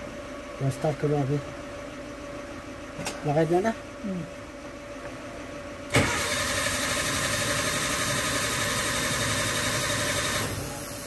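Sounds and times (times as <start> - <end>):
starter motor click: 5.9 - 6.9
engine cranking: 5.9 - 7.4.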